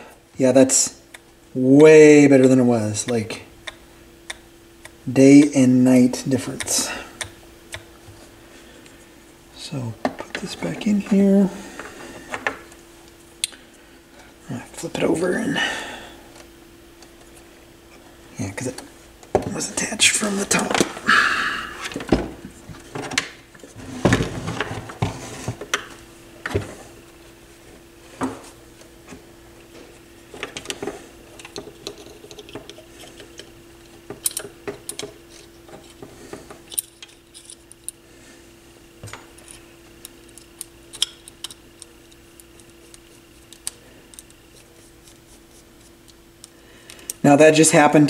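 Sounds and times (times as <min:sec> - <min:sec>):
faint steady hum: 0:00.0 - 0:48.0
metal parts knocking and clinking: 0:36.6 - 0:37.9.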